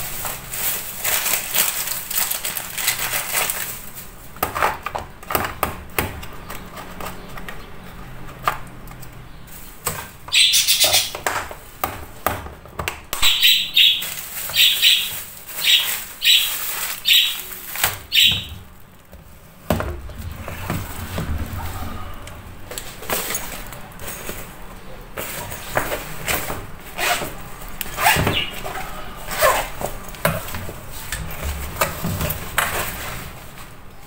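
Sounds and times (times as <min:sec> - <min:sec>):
bird chirping: 0:10.3 - 0:11.2, 0:13.2 - 0:18.7, 0:28.0 - 0:28.7.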